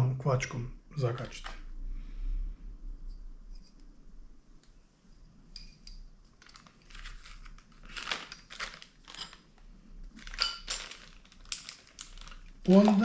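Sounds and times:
plastic bag crinkling: 6.4s - 13.0s.

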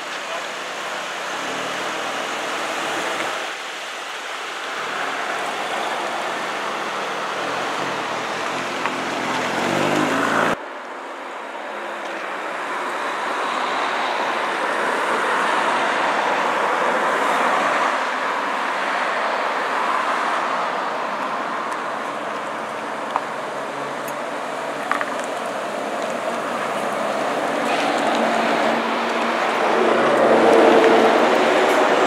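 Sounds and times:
road traffic noise: 0.0s - 32.0s
car engine accelerating: 7.2s - 10.6s, 24.6s - 32.0s.

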